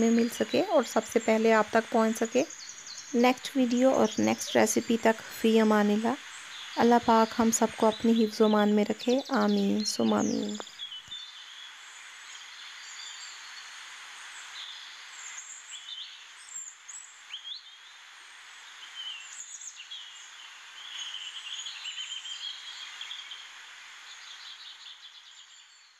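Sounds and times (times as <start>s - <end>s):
small birds chirping: 0.0s - 13.5s
steady hiss: 0.0s - 17.3s.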